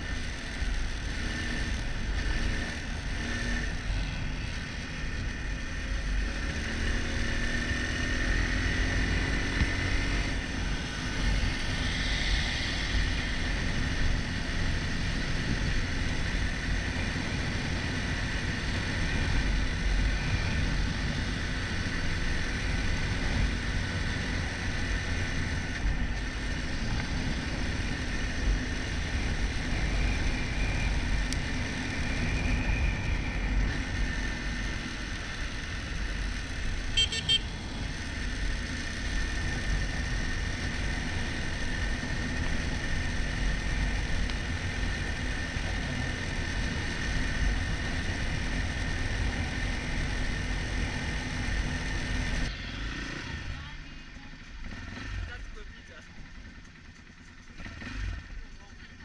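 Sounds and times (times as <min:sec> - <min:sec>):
road vehicle rumble: 0:00.0 - 0:59.0
quick beeps or toots: 0:37.0 - 0:37.4.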